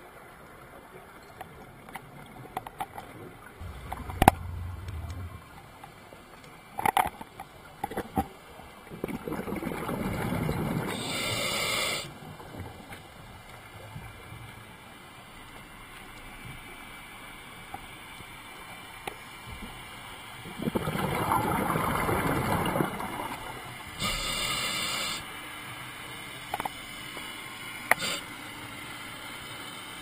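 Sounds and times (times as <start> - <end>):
exhaled regulator bubbles rushing: 3.6 - 5.8.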